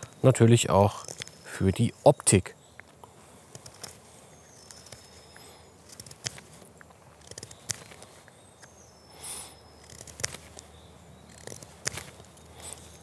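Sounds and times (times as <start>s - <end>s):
knife whittling wood: 9.8s - 10.5s, 11.3s - 13.0s.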